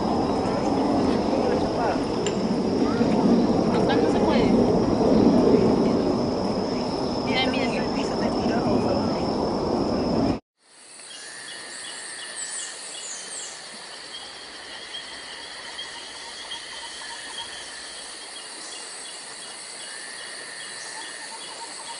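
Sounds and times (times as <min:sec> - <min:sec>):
loud dense noise: 0:00.0 - 0:10.4
insects trilling and chirping: 0:00.0 - 0:21.9.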